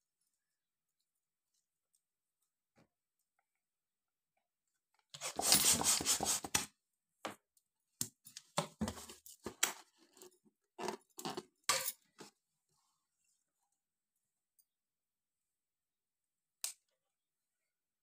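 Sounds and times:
hand pump hissing air: 5.2s - 6.5s.

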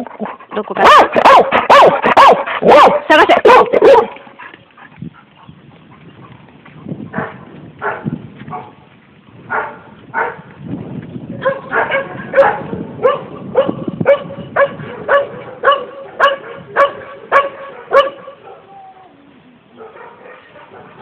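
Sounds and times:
dog barking: 0.8s - 4.2s, 7.2s - 8.8s, 9.5s - 10.4s, 11.4s - 18.7s, 19.8s - 21.0s.

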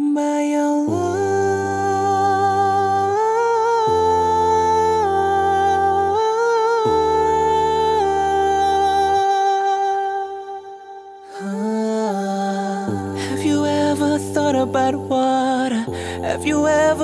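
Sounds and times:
deep hummed bass: 0.9s - 9.3s, 12.9s - 17.0s
layered voices humming chords: 0.9s - 17.0s.

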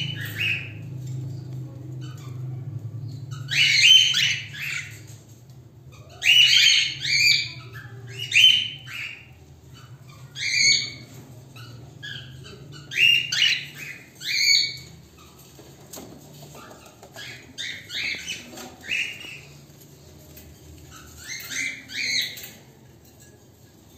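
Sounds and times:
cockatiels shrill calls: 0.0s - 0.8s, 3.3s - 5.2s, 5.9s - 15.6s, 16.5s - 19.6s, 20.9s - 22.6s.

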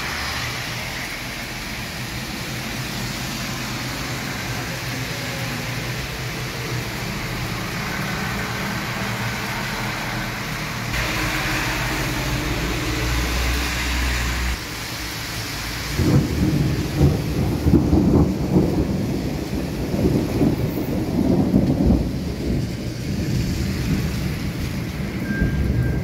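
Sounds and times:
steady rain on street: 0.0s - 26.0s
traffic passing: 0.0s - 26.0s
rolling thunder: 15.9s - 26.0s.

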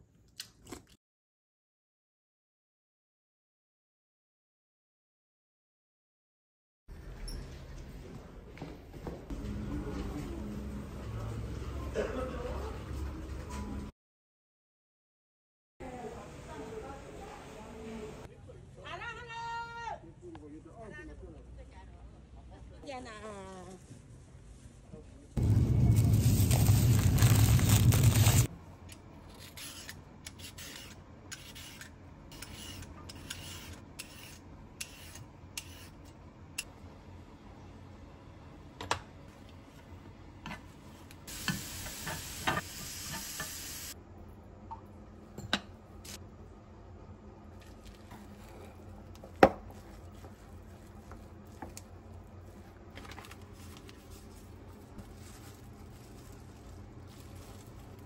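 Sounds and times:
carrot strips sizzling in a pan: 41.3s - 43.9s.

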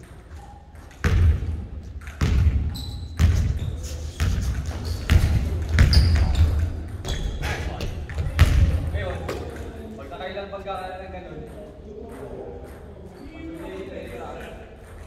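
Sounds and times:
basketball bouncing on wood floor: 0.8s - 8.9s
sneaker squeaks: 2.0s - 8.7s.

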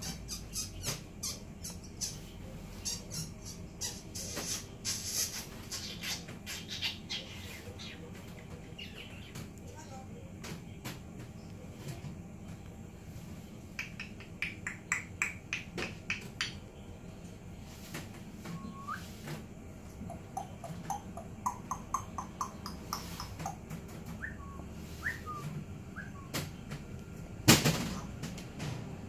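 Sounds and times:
parrot whistling and chirping: 18.5s - 19.2s, 24.2s - 26.4s.

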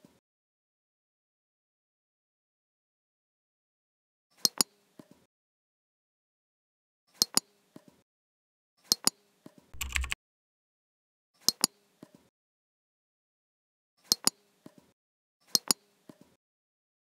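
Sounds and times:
keyboard key presses: 9.8s - 10.2s
mouse double-clicks: 9.8s - 10.2s.

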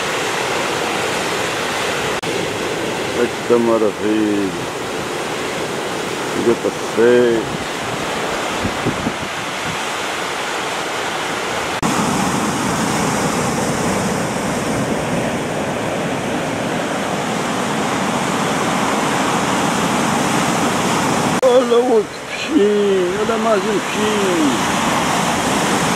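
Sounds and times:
sea surf on rocky shore: 0.0s - 25.9s.

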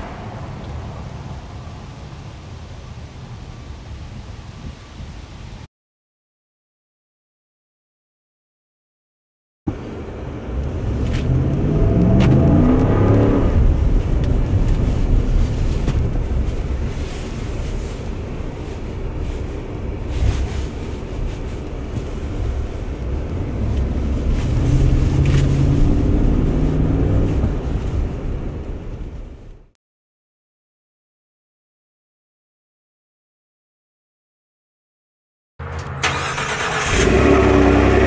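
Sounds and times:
road noise: 0.0s - 5.7s, 9.7s - 29.7s, 35.6s - 38.0s
car engine accelerating: 9.7s - 29.7s, 35.6s - 38.0s.

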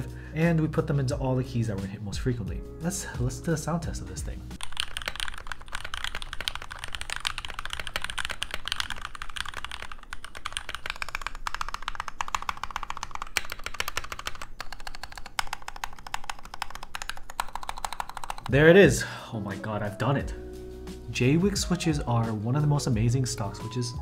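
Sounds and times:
rapid mechanical keyboard typing: 4.6s - 18.6s.

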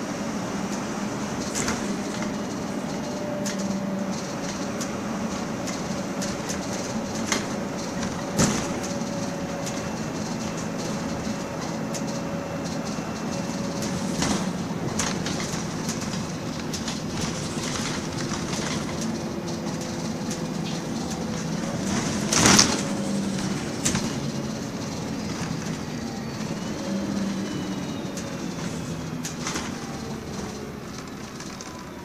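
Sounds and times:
bus diesel engine running: 0.0s - 32.0s
rattles and clicks of bus body: 0.0s - 32.0s
loud clatter: 1.4s - 25.9s.

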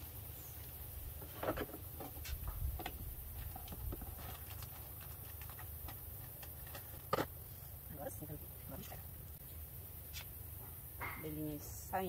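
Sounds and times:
plastic bottle and wrapping crackling: 3.4s - 7.4s.

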